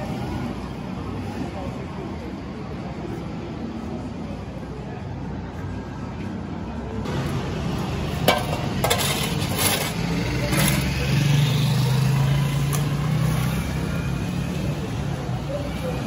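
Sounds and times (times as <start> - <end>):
rubbish gathered into wheelbarrows: 8.2 - 11.0.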